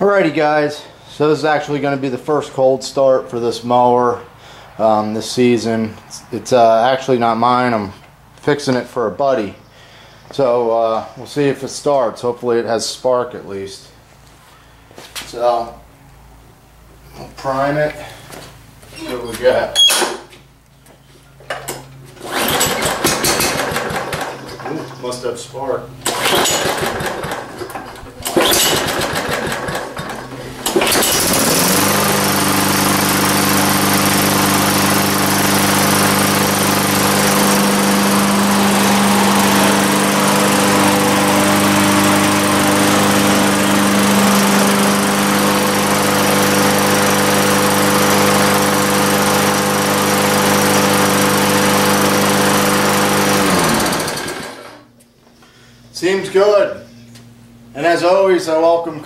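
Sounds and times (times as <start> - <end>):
lawnmower engine starting and running: 21.4 - 55.3.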